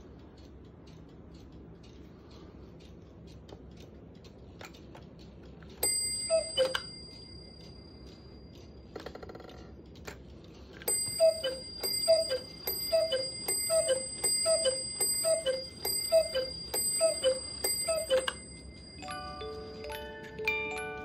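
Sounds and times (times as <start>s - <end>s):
clock hand click: 0.0s - 19.6s
clock movement whirring: 0.0s - 21.0s
two-note cuckoo calls: 6.3s - 6.8s, 11.1s - 18.4s.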